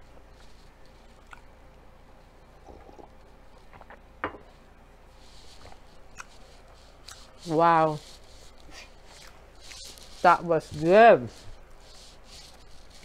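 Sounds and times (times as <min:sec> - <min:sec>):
person chewing food: 0:00.3 - 0:04.1, 0:05.5 - 0:07.4, 0:08.2 - 0:10.1.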